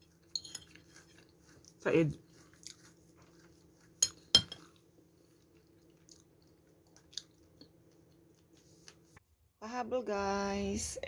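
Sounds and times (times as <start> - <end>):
metal spoon clinking against dish: 0.3 - 0.8, 4.0 - 4.7.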